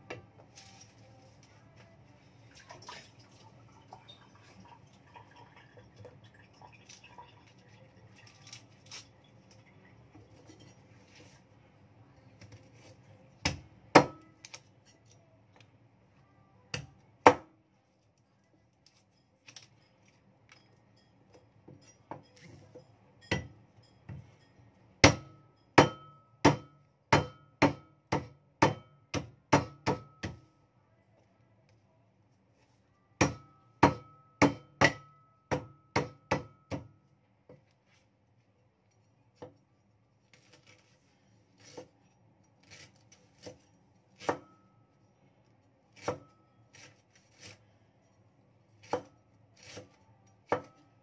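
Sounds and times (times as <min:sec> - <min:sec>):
knife chopping on wooden board: 0:25.0 - 0:30.4.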